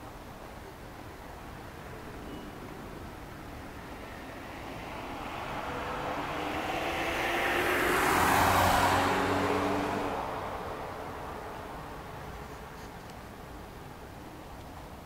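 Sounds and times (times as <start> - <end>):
vehicle passing by: 3.6 - 12.4.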